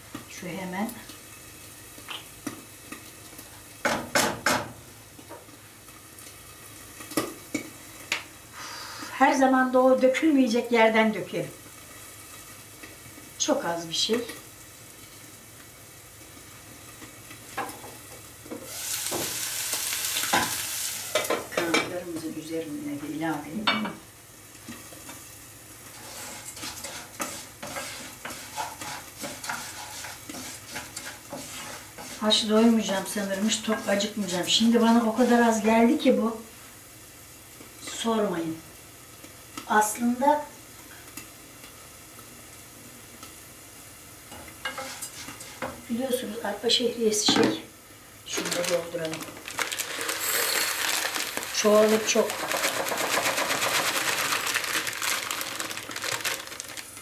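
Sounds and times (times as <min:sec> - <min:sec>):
chicken wings sizzling: 0:00.0 - 0:57.0
hand spice grinder rasping: 0:49.6 - 0:56.5.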